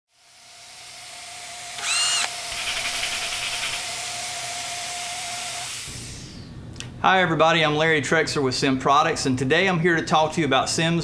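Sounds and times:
spray gun air hiss: 0:05.5 - 0:06.4.

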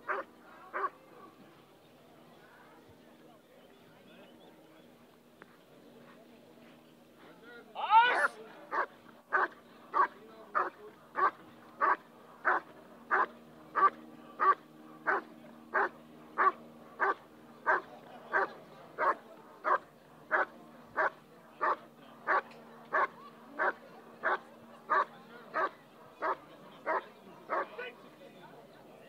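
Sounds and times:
dog barking: 0:08.2 - 0:27.7.

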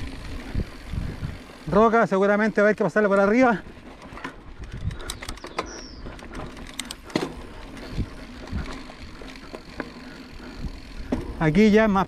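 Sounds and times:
bike knocking over rocks: 0:03.1 - 0:10.2, 0:11.0 - 0:11.4.

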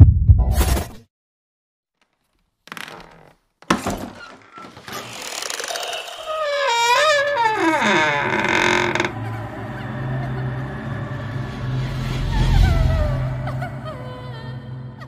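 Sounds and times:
long wavering creak: 0:02.0 - 0:09.8.

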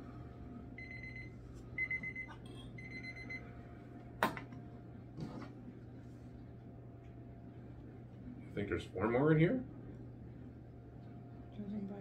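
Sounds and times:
kitchen timer beeping: 0:00.8 - 0:03.4.

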